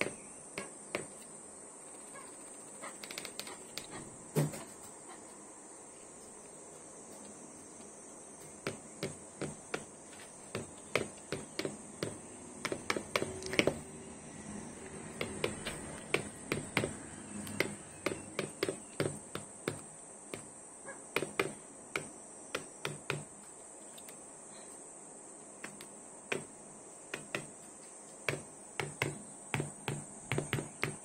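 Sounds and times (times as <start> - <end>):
beak tapping on glass: 10.5 - 13.8, 15.2 - 20.5.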